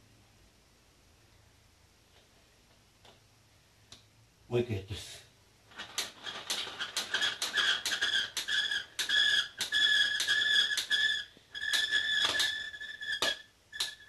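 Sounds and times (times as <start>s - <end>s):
steady clicking: 5.7s - 14.0s
hand crank squeaking: 5.8s - 14.0s.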